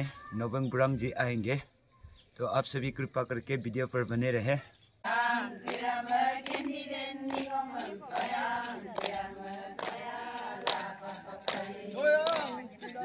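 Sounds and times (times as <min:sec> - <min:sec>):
women singing a chant in unison: 0:05.0 - 0:13.0
hands clapping in time: 0:05.6 - 0:13.0.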